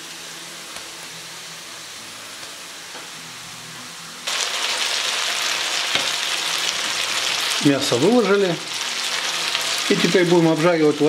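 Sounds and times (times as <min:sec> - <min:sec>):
meat sizzling in oil: 0:04.2 - 0:11.0.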